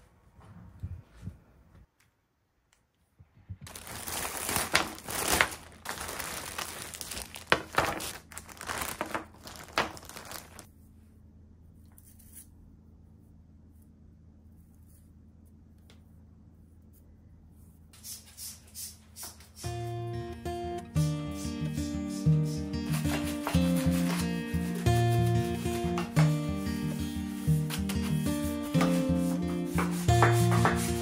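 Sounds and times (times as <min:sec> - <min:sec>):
packaging crinkling and rustling: 0:03.6 - 0:10.7.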